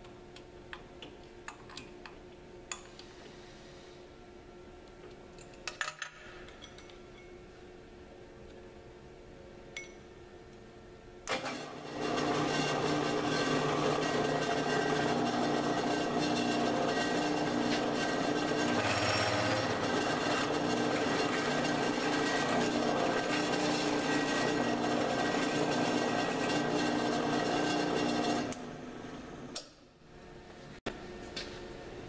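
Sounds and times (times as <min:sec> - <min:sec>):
drill press motor hum: 0:12.8 - 0:29.2
drill boring into metal: 0:18.6 - 0:21.4.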